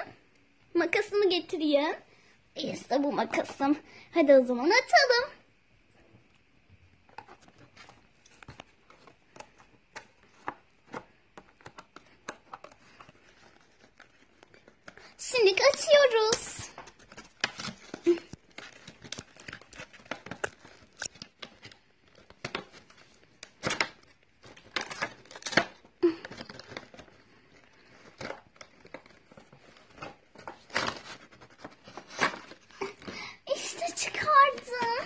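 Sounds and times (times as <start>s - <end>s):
cardboard and plastic tearing: 7.1s - 35.0s.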